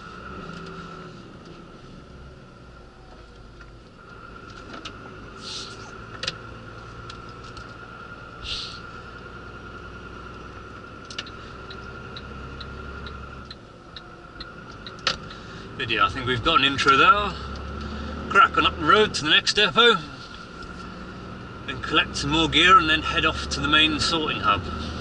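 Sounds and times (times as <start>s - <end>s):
diesel engine hum: 0.0s - 25.0s
road noise: 0.0s - 25.0s
short air hisses: 5.4s - 5.8s, 8.4s - 8.8s
light regular ticking: 9.0s - 15.6s.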